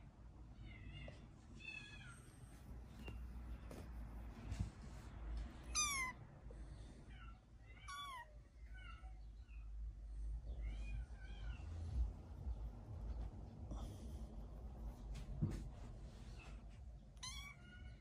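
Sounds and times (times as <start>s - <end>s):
kittens mewing: 5.7s - 6.2s
low rumble: 10.0s - 17.0s.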